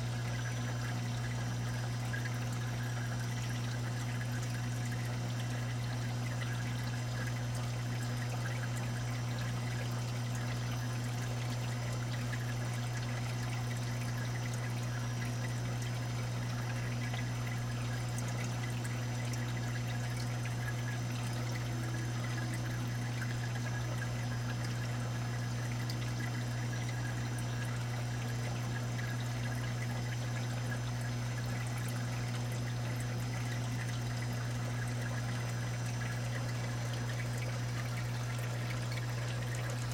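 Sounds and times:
water trickling and pouring: 0.0s - 39.9s.

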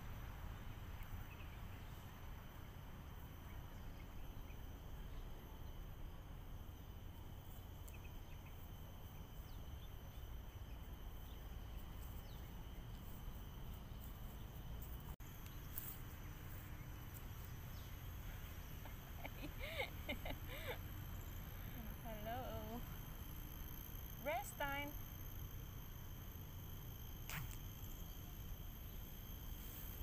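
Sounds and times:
insects droning in trees: 0.0s - 30.0s
faint bird chirps: 27.2s - 30.0s.

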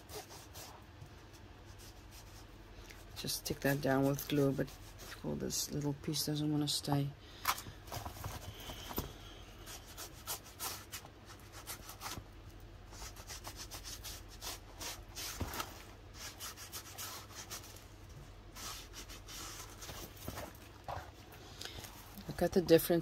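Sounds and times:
paper rubbing and rustling: 18.6s - 21.2s.

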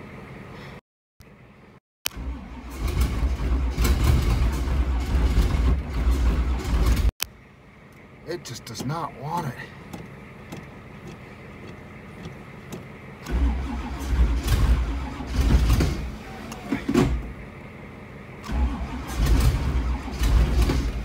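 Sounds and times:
starter cranking engine: 2.1s - 7.1s, 8.6s - 17.1s, 18.4s - 21.0s.

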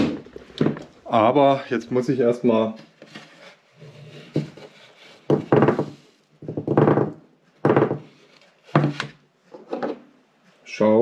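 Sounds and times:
wooden tray knocked and shaken: 0.0s - 0.9s.

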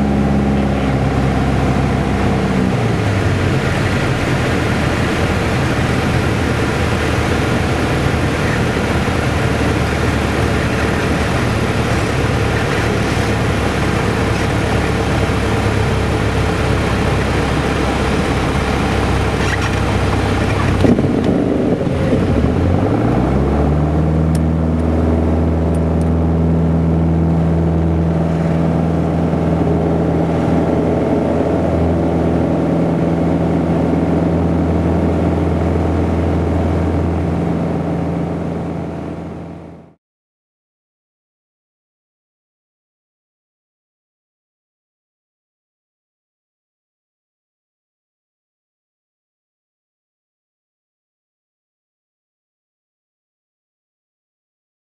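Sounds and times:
airflow rushing noise: 0.0s - 39.9s
aircraft engine hum: 0.0s - 40.0s.

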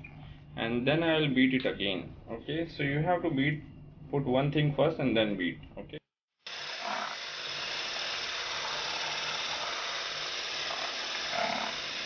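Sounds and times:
electric whisk whipping batter: 6.5s - 12.0s.

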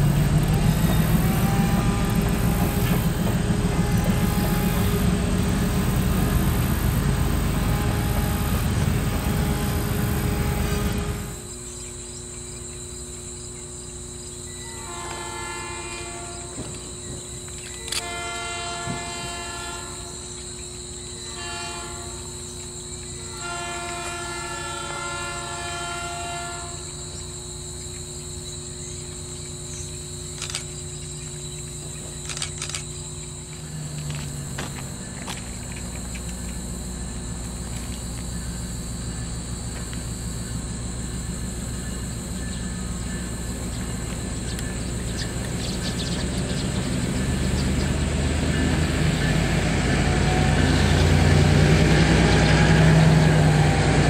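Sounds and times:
locomotive horn: 0.0s - 11.6s, 14.5s - 27.4s, 46.7s - 54.0s
diesel locomotive engine running: 0.0s - 54.0s.

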